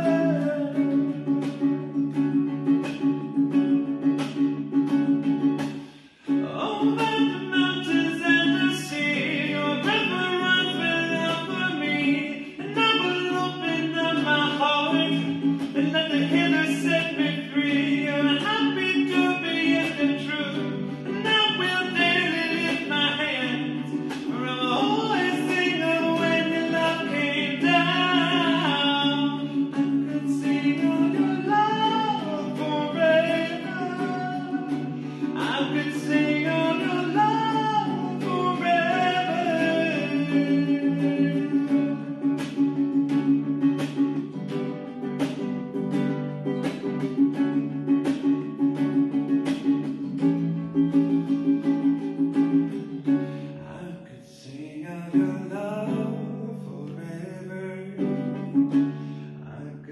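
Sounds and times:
man singing a hymn: 0.0 - 1.2, 6.2 - 42.6, 53.6 - 58.5, 59.4 - 59.9
ukulele strumming: 0.0 - 59.9.

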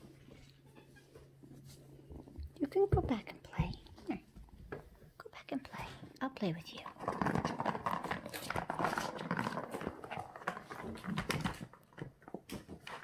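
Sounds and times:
plastic ball rolling on track: 6.9 - 13.0.

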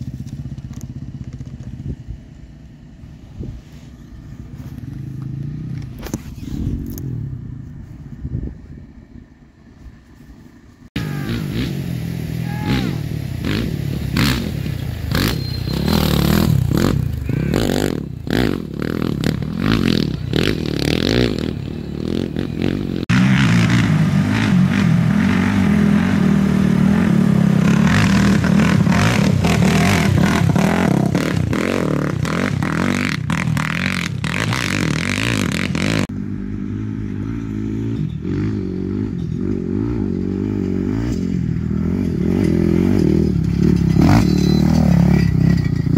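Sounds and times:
off-road engines revving: 0.0 - 7.9, 10.8 - 45.9
clattering and scraping: 42.0 - 45.9.

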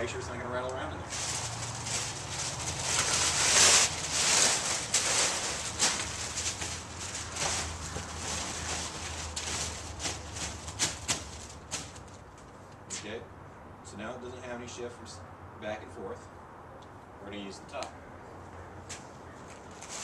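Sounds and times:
paper crumpling and crinkling: 1.1 - 12.2
paper stuffed into cardboard box: 1.1 - 12.2.

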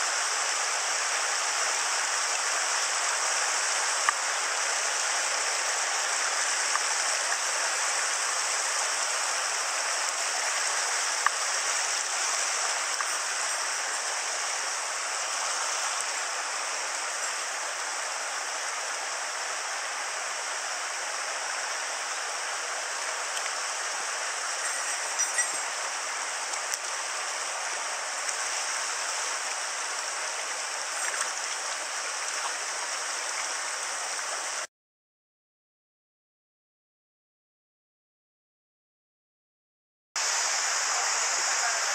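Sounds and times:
stream running over rocks: 0.0 - 34.7, 40.2 - 41.9.

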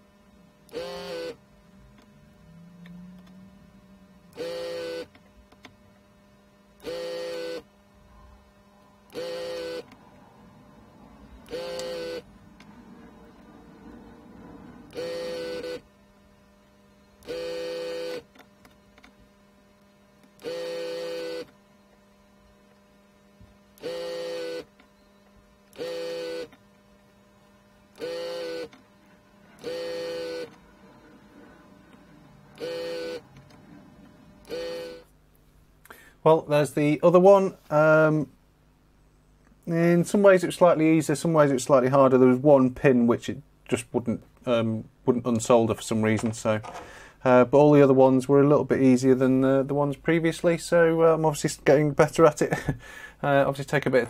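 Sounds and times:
vacuum pump buzzing in bursts: 0.0 - 31.0, 31.7 - 33.6, 34.2 - 35.3.

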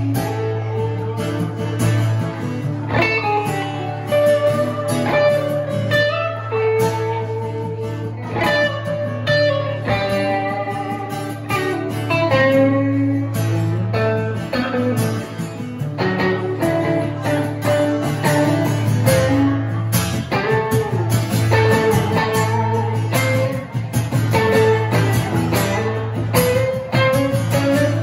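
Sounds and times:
electric guitar lead lines: 0.0 - 28.0
strummed acoustic guitar: 0.0 - 28.0.

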